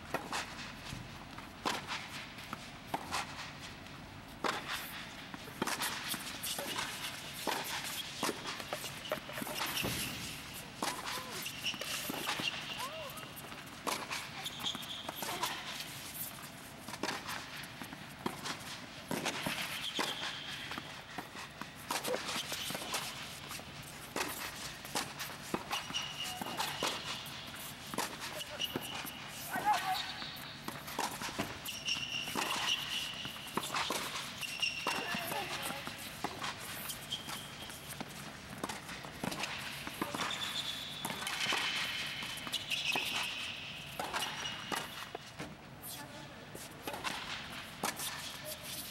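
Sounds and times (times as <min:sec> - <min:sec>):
footsteps on court: 0:00.1 - 0:48.9
rackets striking tennis ball: 0:04.4 - 0:45.6, 0:46.6 - 0:48.8
shoe squeak: 0:06.4 - 0:16.3, 0:19.4 - 0:21.2, 0:22.0 - 0:23.2, 0:24.2 - 0:38.1, 0:39.2 - 0:45.2
ball bouncing on court: 0:08.8 - 0:13.2.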